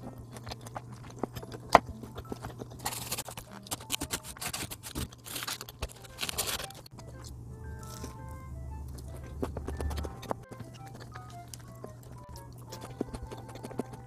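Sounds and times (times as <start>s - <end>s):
person chewing: 0.0s - 14.0s
paper box rustling and scraping: 2.3s - 6.8s
mouth clicks: 8.8s - 14.0s.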